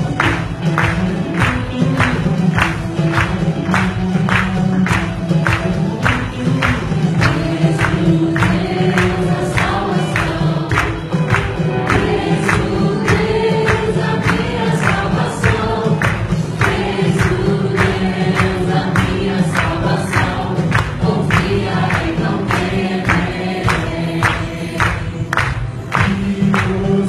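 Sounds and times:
choir singing worship music: 6.2 - 27.0.

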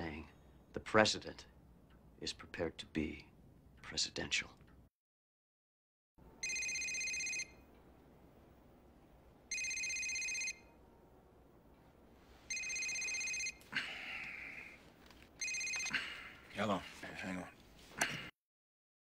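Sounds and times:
telephone ringing: 6.3 - 7.7, 9.5 - 10.8, 12.5 - 13.6, 15.4 - 16.0.

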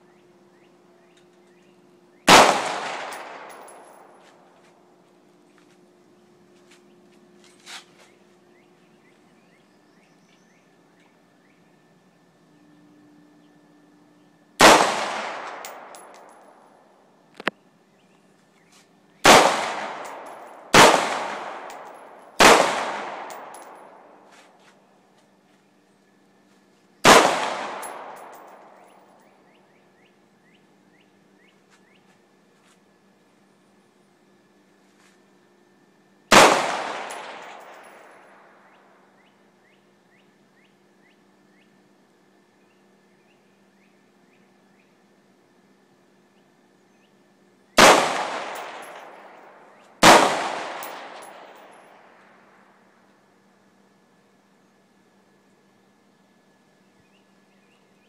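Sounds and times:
rifle shot echoing: 2.3 - 4.2, 14.6 - 16.6, 19.2 - 24.2, 27.0 - 29.0, 36.3 - 38.7, 47.8 - 52.3.

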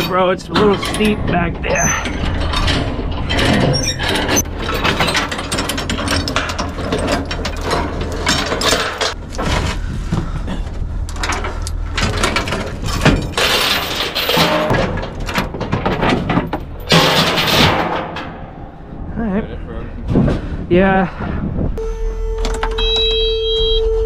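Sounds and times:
metallic clanking and rattling: 0.0 - 19.0.

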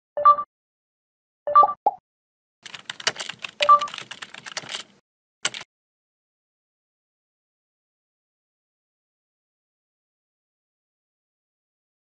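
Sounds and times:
keyboard typing clicks: 2.6 - 5.7.

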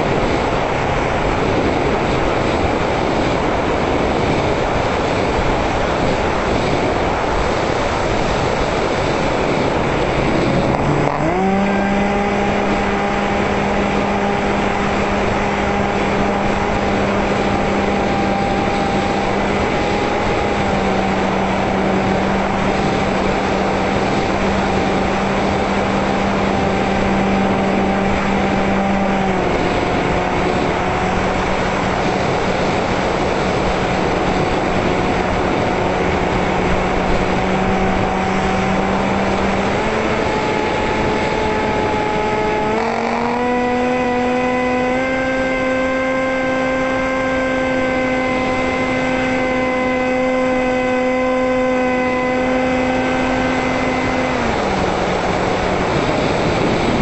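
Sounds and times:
electric motor propeller whining: 1.2 - 57.0.

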